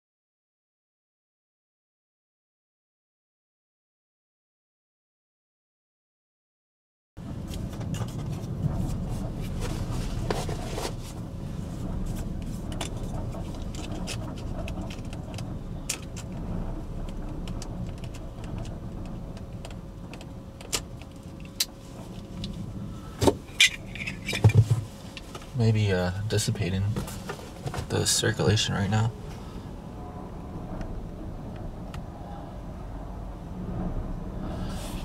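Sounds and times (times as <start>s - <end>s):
vehicle rumbling: 7.2s - 35.0s.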